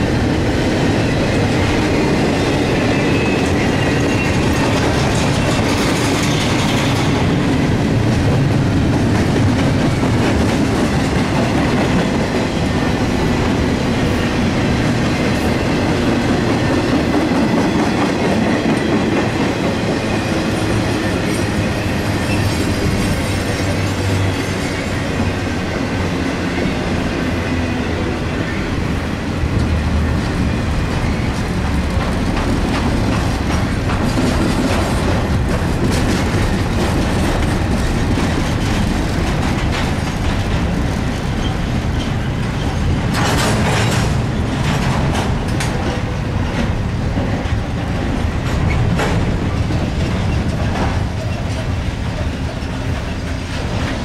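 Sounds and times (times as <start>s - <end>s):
freight train rumbling past: 0.0s - 54.0s
wheels clattering over rail joints: 29.6s - 54.0s.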